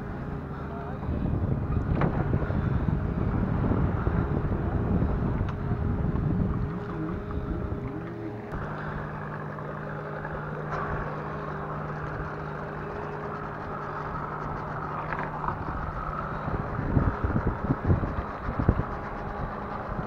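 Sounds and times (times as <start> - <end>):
outboard boat motor idling: 0.0 - 20.0
wind buffeting microphone: 0.0 - 20.0.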